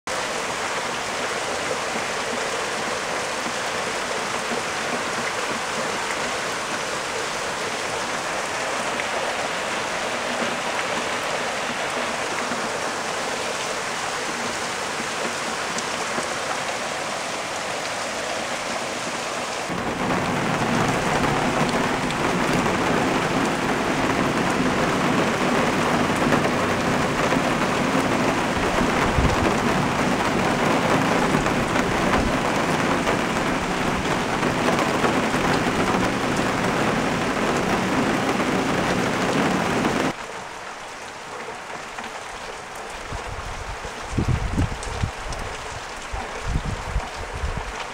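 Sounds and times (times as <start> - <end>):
rain falling: 0.1 - 47.9
thunder rumble: 19.7 - 40.2.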